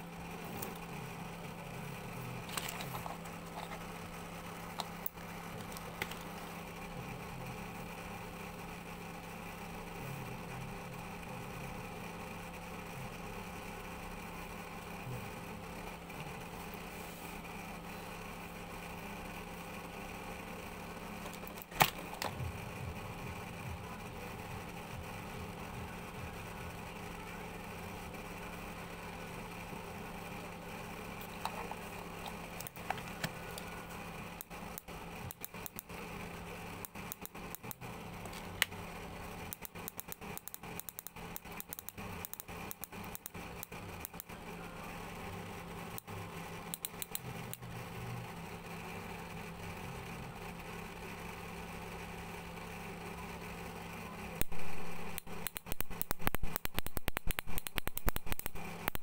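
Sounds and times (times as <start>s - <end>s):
sharp click: 54.4s - 59.0s.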